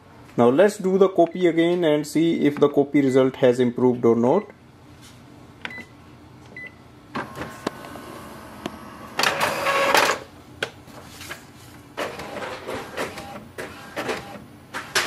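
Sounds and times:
print head running: 7.2 - 10.2, 12.0 - 15.0
printer motors whirring and clicking: 7.2 - 10.2, 12.0 - 15.0
printer beep: 9.1 - 10.2, 12.0 - 14.4.

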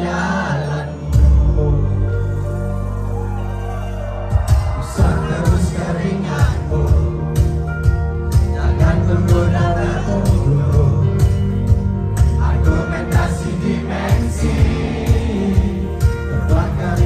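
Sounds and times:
live band music: 0.0 - 17.0
person singing: 4.8 - 7.6
drum beat: 14.1 - 16.8.

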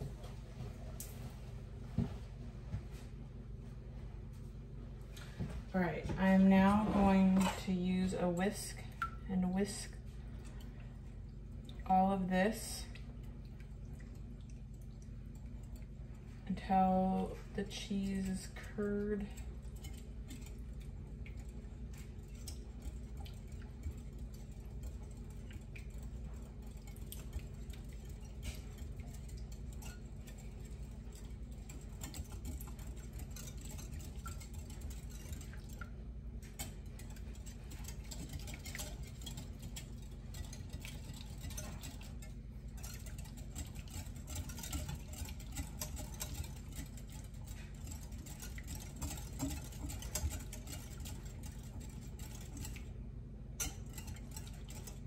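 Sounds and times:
steady low hum: 0.0 - 55.0
whisk clicking against bowl: 17.7 - 52.9, 53.6 - 55.0.

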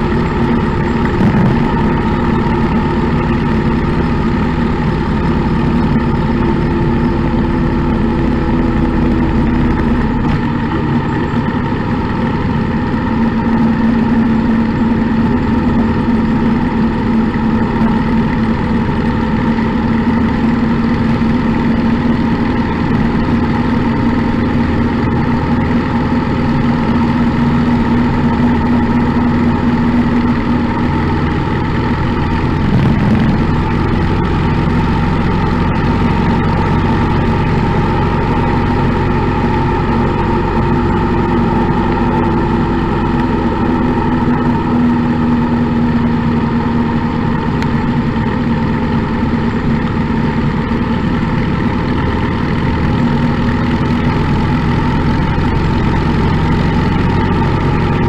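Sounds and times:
motorcycle engine running: 0.0 - 58.0
road noise: 0.0 - 58.0
wind noise: 32.4 - 34.5.

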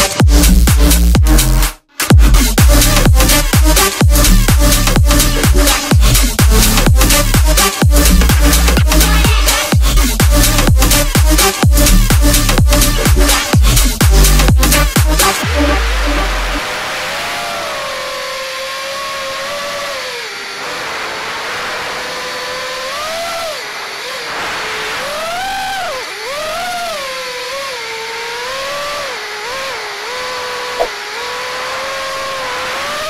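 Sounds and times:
quadcopter motors whining: 2.4 - 33.0
sharp click: 30.8 - 31.0.

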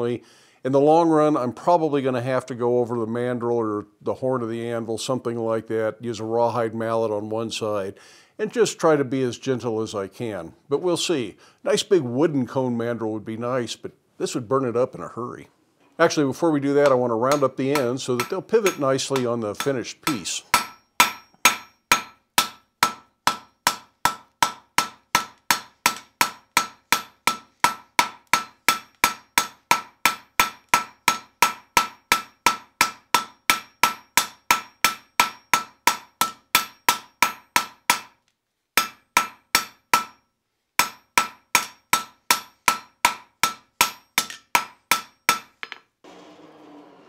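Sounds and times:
hammer ringing on anvil: 16.8 - 19.8, 20.5 - 38.1, 40.8 - 45.8.

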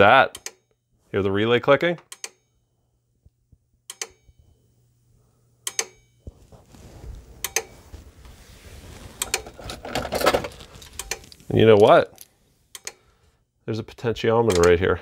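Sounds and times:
low rustling noise: 6.3 - 12.7.

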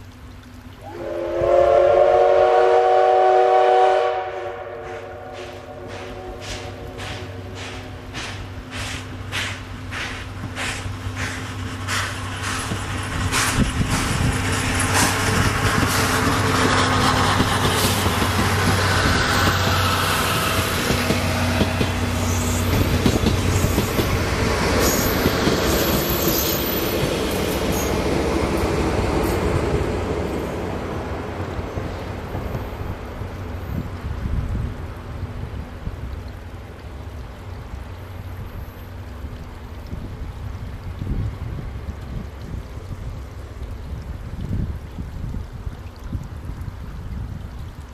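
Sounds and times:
steam locomotive exhaust beating: 0.8 - 36.2
train wheels rumbling on rails: 4.8 - 34.8.

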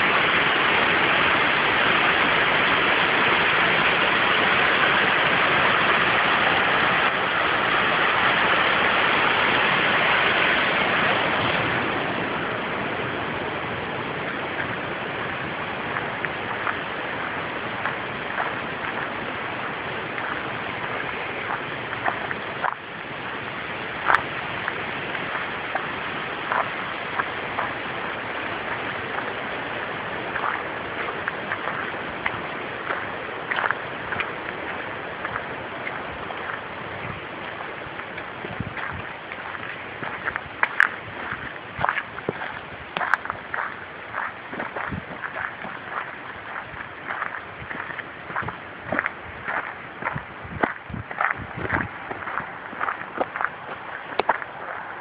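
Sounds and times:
waterfall rushing: 0.0 - 55.0
light crackles: 14.2 - 55.0.

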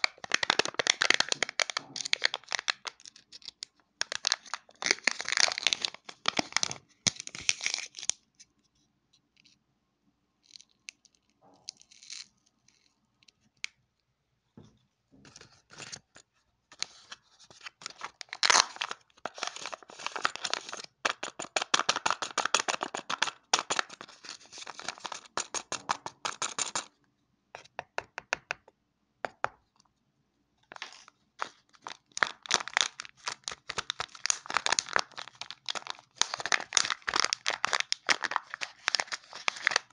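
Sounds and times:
packaging crinkling and tearing: 0.0 - 8.2, 16.7 - 26.9, 30.7 - 39.9.

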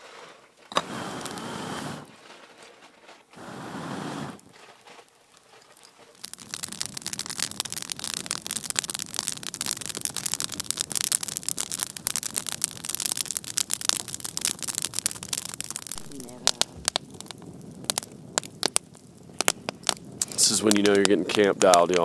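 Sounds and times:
breath blown onto embers: 0.0 - 22.0
campfire crackling and popping: 0.0 - 22.0.

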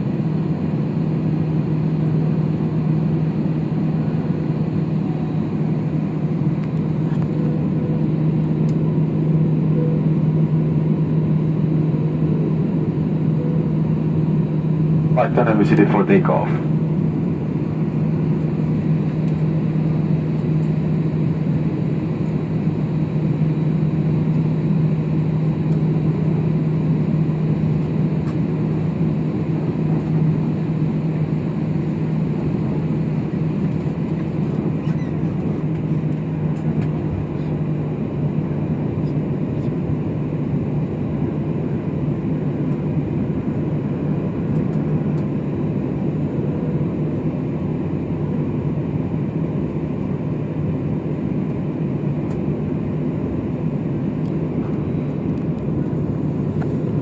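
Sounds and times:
jet engines rumbling in cabin: 0.0 - 57.0.

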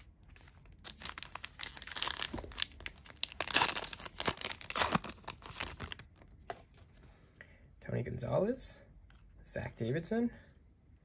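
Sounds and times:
foil wrapper tearing and crinkling: 0.7 - 6.1.

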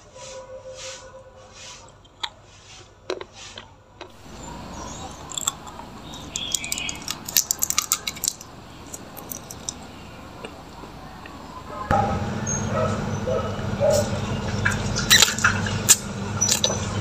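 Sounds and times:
foil wrapper crinkling: 5.2 - 9.8.

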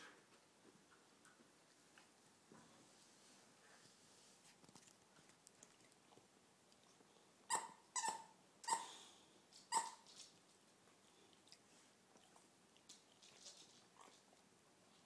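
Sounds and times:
dog gnawing softly: 4.4 - 7.3, 10.1 - 15.0
squeaky toy squeaking: 7.5 - 8.9, 9.7 - 10.0.

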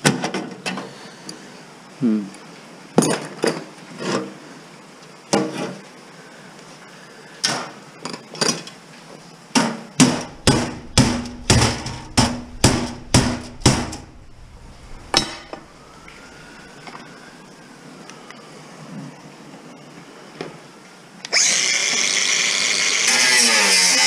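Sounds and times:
hammer striking sheet steel: 9.6 - 16.0.

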